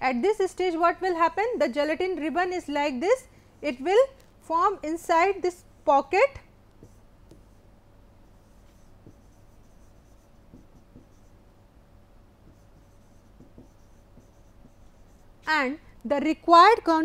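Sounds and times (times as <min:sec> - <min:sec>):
steady low hum: 0:00.0 - 0:17.0
stylus scratching on tablet: 0:06.8 - 0:11.6, 0:12.4 - 0:15.5.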